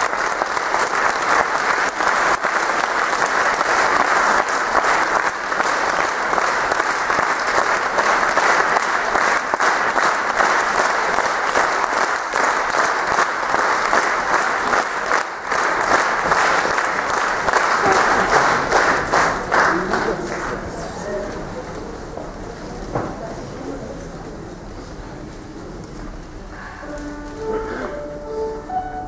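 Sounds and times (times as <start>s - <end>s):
audience applauding: 0.0s - 21.0s.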